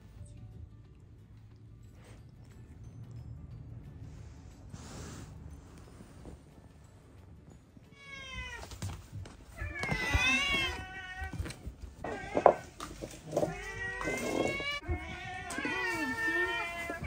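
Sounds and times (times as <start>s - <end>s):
cats meowing: 7.9s - 17.0s.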